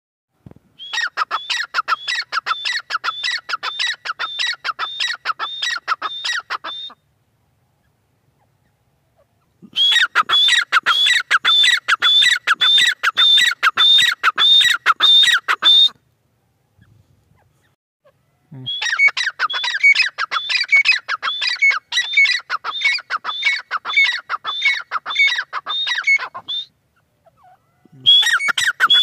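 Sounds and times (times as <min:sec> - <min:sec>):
bird calling sharp high notes: 0:00.8 - 0:07.0, 0:27.3 - 0:29.0.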